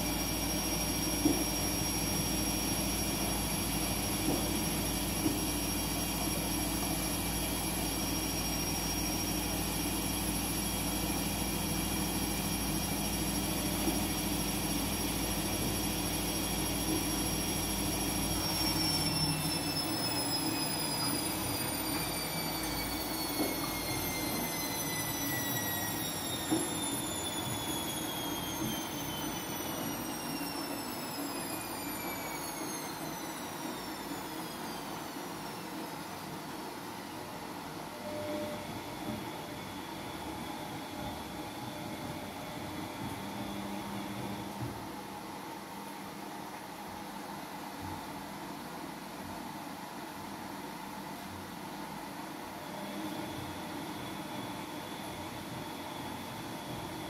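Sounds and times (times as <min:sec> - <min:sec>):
washing machine spinning: 0:00.0 - 0:57.0.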